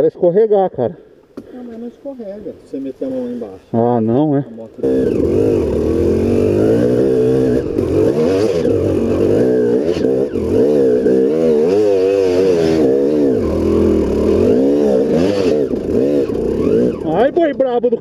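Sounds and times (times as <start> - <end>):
dirt bike engine revving: 4.1 - 17.8.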